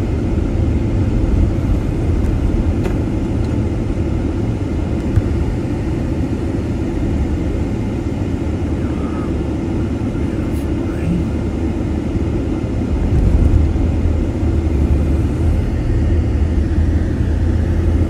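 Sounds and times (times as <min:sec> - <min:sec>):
vehicle engine and tyre rumble: 0:00.0 - 0:18.0.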